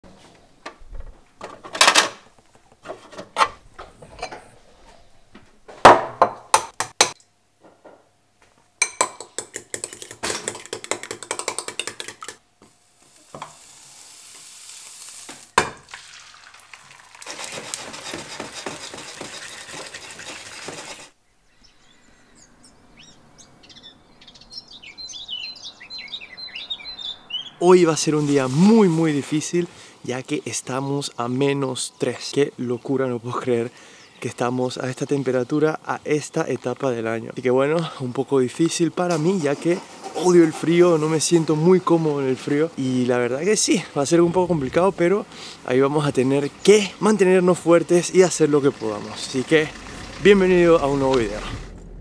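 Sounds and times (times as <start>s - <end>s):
fork whisking eggs in a bowl: 9.3s - 12.4s, 17.1s - 21.1s
frying sizzle: 12.6s - 21.1s
birds chirping: 21.2s - 27.8s.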